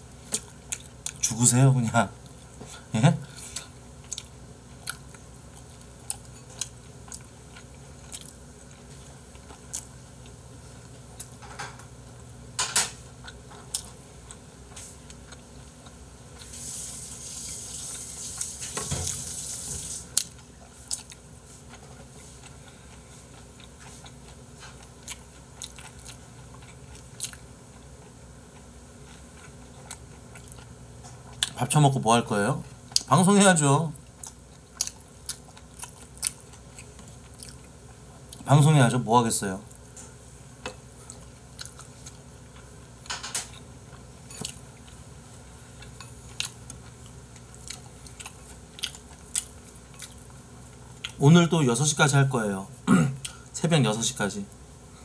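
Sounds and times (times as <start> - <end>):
person chewing and biting: 3.5 - 10.4, 13.2 - 14.4, 19.1 - 31.6, 34.0 - 38.4, 40.7 - 42.8, 45.8 - 51.2
steady hiss: 16.4 - 20.2.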